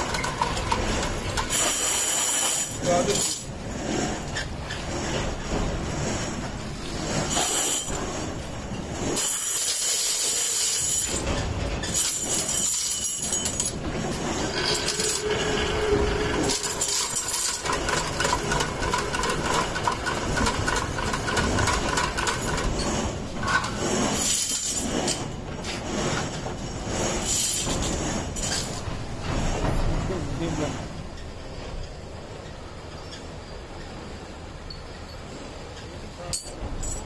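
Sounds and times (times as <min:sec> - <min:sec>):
machine hum: 0:13.7 - 0:24.2.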